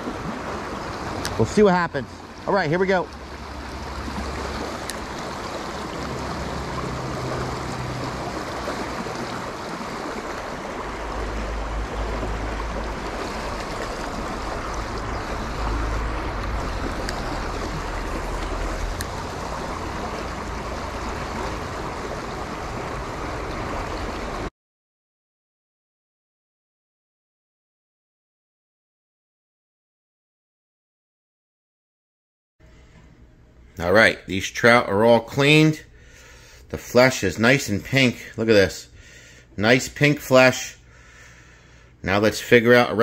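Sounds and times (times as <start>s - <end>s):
stream rushing over stones: 0.0s - 24.5s.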